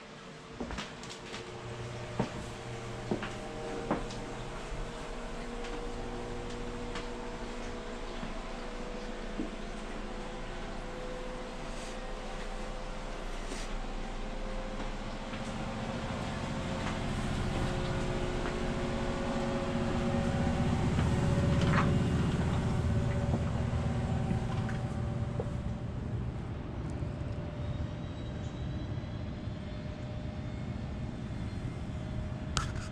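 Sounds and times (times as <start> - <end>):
passing vehicle rumble: 15.0 - 26.1.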